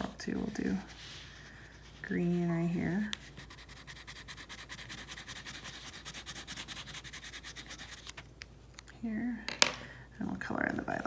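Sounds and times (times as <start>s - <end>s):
crayon scribbling on paper: 3.4s - 8.1s.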